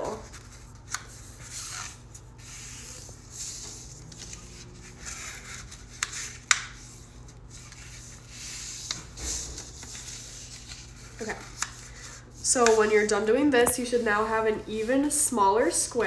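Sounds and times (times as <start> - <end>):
paper folding and creasing: 0.1 - 12.8
paper rubbing against desk: 0.2 - 13.1.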